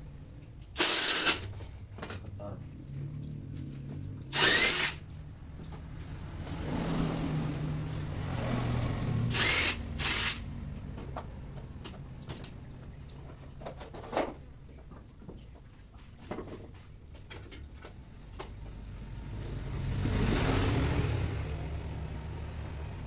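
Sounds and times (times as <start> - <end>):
low steady hum: 0.0 - 6.4
power tool bursts: 0.8 - 1.5, 4.3 - 5.0, 9.3 - 10.4.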